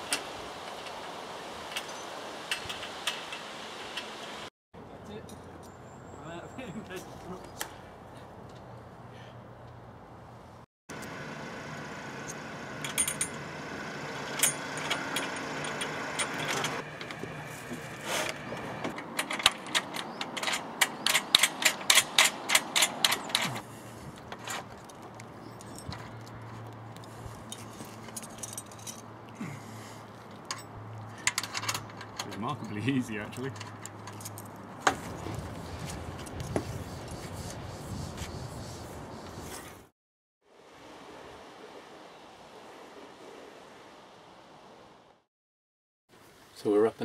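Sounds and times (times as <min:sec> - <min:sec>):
metal clamps clinking: 0:18.9 - 0:23.6.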